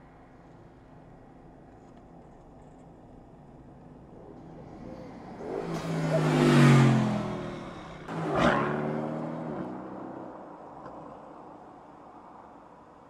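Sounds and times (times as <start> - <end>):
car engine passing at speed: 4.3 - 11.2
rush of air from passing car: 4.4 - 9.8.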